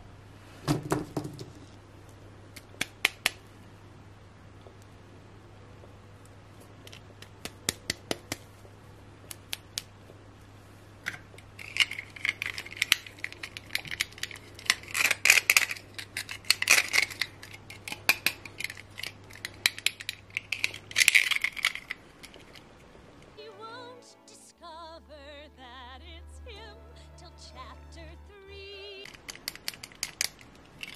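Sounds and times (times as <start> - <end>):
faint low hum: 0.0 - 30.9
sharp plastic clicks: 2.5 - 3.5, 6.8 - 8.5, 9.2 - 9.9, 11.1 - 22.6, 29.0 - 30.9
plastic rubbing and crinkling: 11.1 - 22.8.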